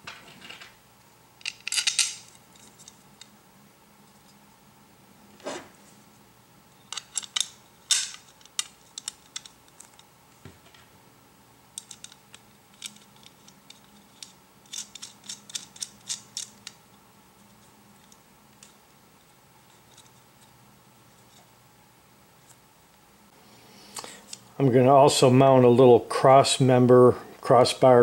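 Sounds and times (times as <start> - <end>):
light sharp clicks of metal pieces: 1.4 - 3.4, 6.8 - 10.1, 11.7 - 16.8.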